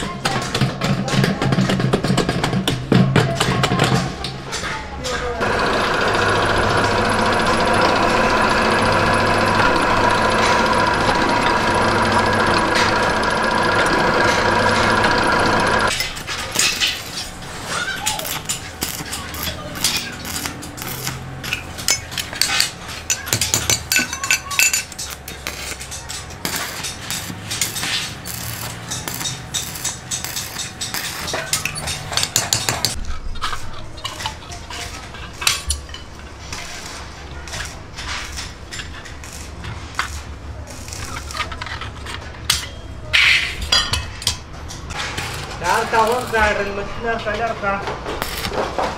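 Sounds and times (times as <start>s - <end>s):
stick welding crackling: 5.4s - 33.0s, 34.2s - 43.6s, 44.9s - 48.9s
hammer tapping metal: 21.8s - 33.0s.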